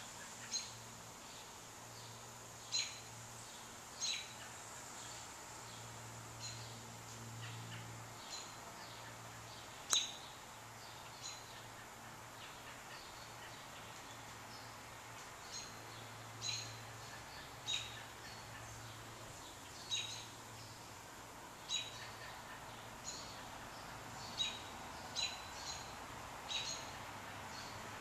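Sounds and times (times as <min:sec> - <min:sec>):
bird chirping: 0:00.0 - 0:06.8, 0:07.4 - 0:20.9, 0:21.6 - 0:27.8
steady background hiss: 0:00.0 - 0:28.0.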